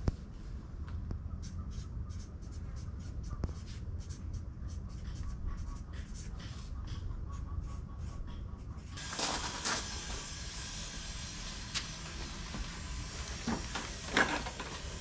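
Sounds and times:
pen scratching on paper: 0:01.4 - 0:09.0.

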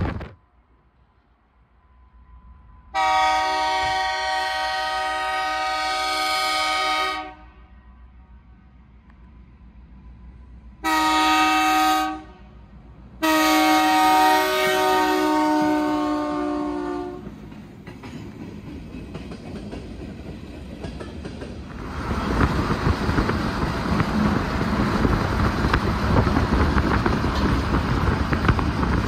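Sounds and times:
low rumble of freight train: 0:00.0 - 0:29.0
locomotive air horn blasts: 0:02.9 - 0:08.5, 0:10.8 - 0:12.6, 0:13.2 - 0:17.3.

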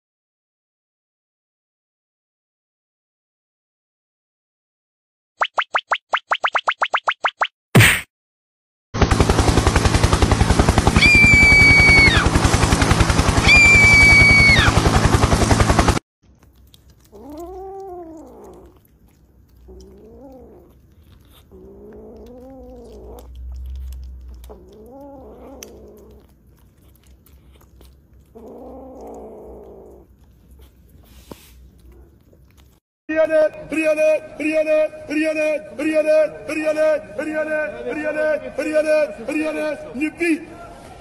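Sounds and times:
fast pulsing sound: 0:09.0 - 0:16.0
kitten mewing: 0:16.8 - 0:32.8.

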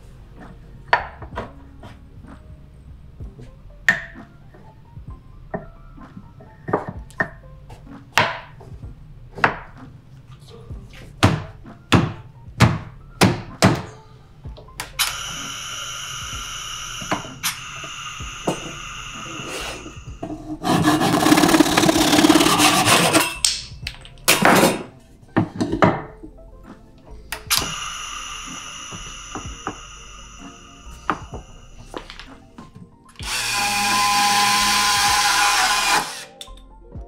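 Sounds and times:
compressed air hissing: 0:15.0 - 0:23.2, 0:27.1 - 0:32.6.

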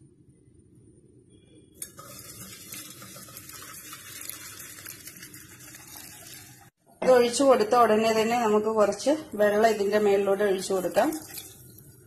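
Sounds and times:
water poured into a metal strainer: 0:01.8 - 0:06.7, 0:10.6 - 0:12.0.

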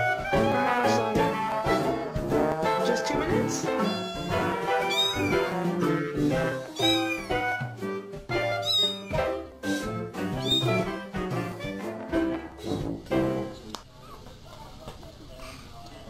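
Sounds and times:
background music: 0:00.0 - 0:13.7
cat meowing: 0:03.5 - 0:05.5, 0:06.6 - 0:07.7, 0:08.4 - 0:09.4, 0:10.3 - 0:11.0.

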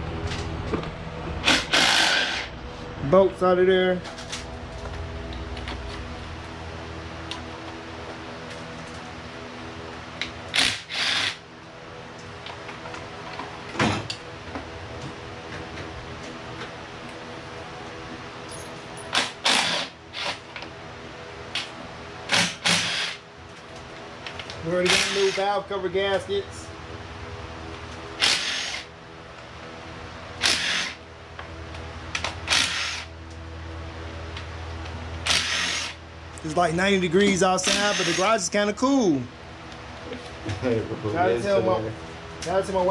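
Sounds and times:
steady hum: 0:00.0 - 0:42.9
hand tools on metal parts: 0:37.2 - 0:38.4
cordless power driver spinning: 0:37.6 - 0:38.4.

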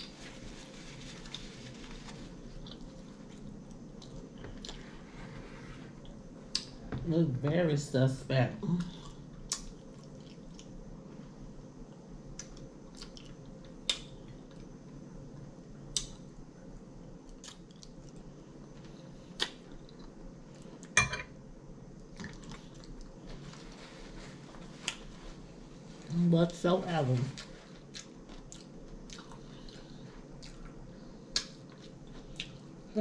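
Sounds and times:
low room hum: 0:00.0 - 0:33.0.

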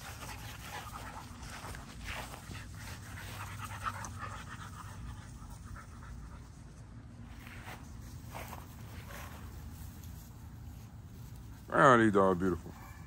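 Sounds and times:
puppies panting: 0:00.0 - 0:07.0.

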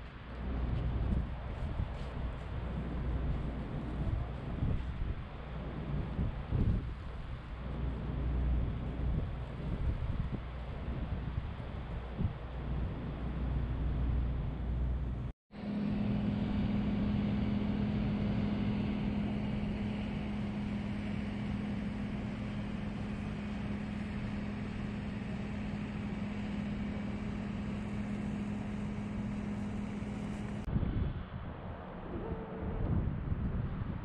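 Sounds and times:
wind buffeting microphone: 0:00.0 - 0:15.2, 0:17.1 - 0:34.0
low hum: 0:00.0 - 0:34.0
street noise: 0:00.0 - 0:34.0
faint short whine: 0:32.0 - 0:33.1.

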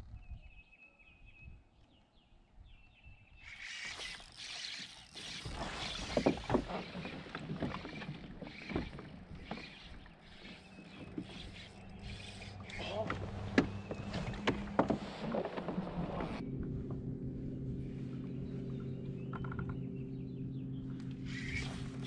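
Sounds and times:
fishing reel and line noise: 0:03.4 - 0:14.4, 0:21.0 - 0:22.0
sharp knocks against kayak: 0:12.9 - 0:16.2.

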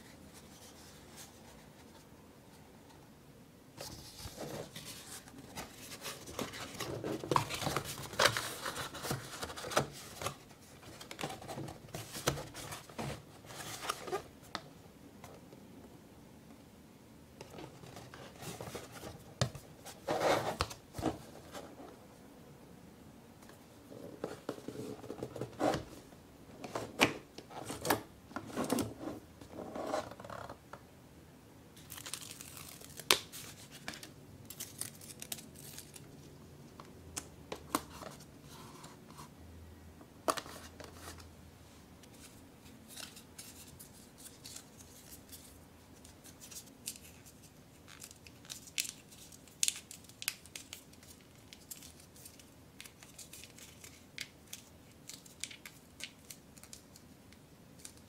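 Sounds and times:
paper rustling and crinkling: 0:03.8 - 0:14.3, 0:42.1 - 0:57.0.

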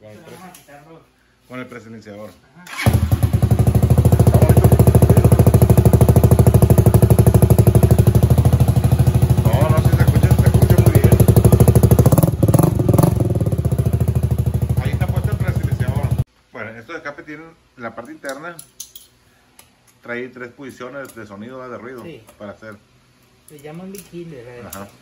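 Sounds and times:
motorcycle engine idling: 0:02.8 - 0:16.2.

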